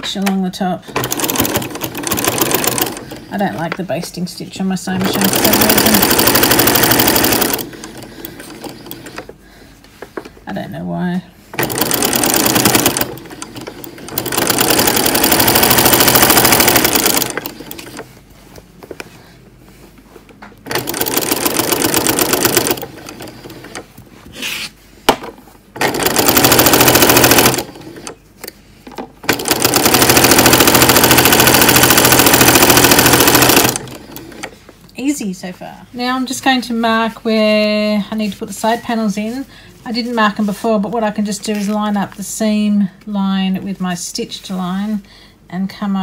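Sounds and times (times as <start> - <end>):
sewing machine stitching: 0.9 - 3.3, 5.0 - 9.2, 11.6 - 18.0, 20.7 - 23.8, 25.8 - 28.2, 29.2 - 34.5.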